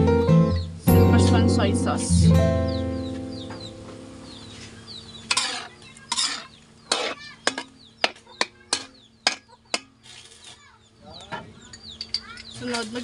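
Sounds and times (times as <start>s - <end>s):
spatula scraping a wok: 4.6s - 10.6s.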